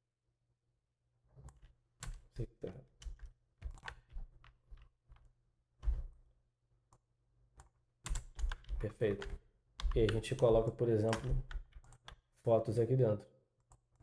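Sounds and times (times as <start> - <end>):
keyboard key presses: 3.0 - 6.1, 7.6 - 12.2.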